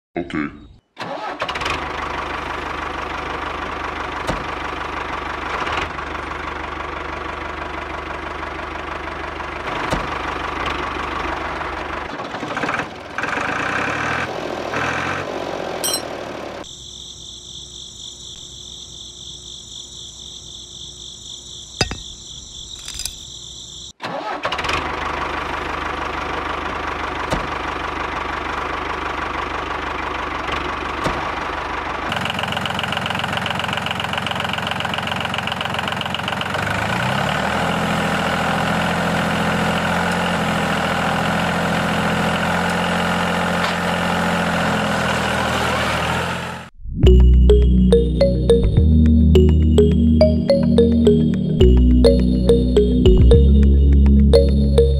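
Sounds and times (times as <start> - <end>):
engine-like machine running: 1.4 - 16.6
low hum rising in pitch: 46.8 - 54.9.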